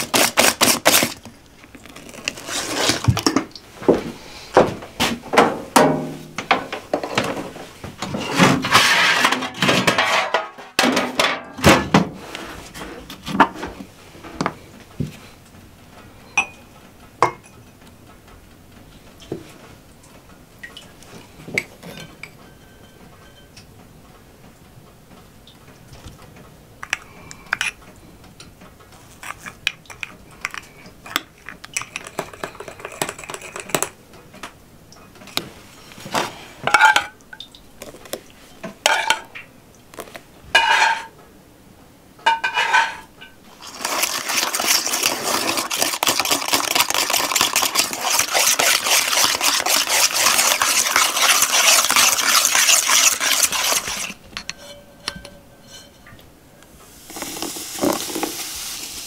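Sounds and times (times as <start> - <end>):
bowls and utensils clinking: 16.4 - 17.6, 21.6 - 23.7, 29.2 - 34.0, 36.7 - 37.2, 40.6 - 41.1, 42.3 - 56.3.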